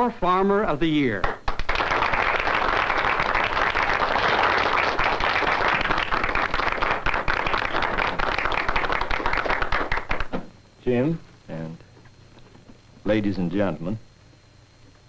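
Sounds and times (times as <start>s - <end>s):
audience applauding: 1.2s - 10.4s.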